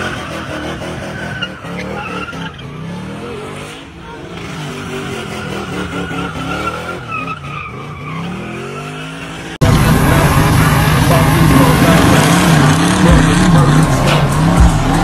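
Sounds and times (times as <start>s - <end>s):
car engine revving: 0.0s - 15.0s
tyres squealing: 0.0s - 15.0s.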